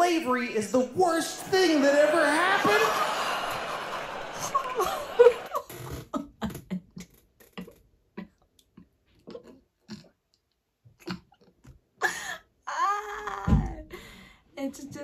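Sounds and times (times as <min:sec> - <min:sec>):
woman laughing breathily: 0:04.4 - 0:05.6.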